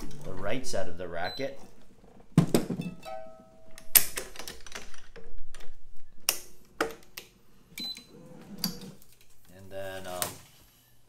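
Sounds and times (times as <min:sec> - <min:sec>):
short ringing tone: 0:02.8 - 0:03.8.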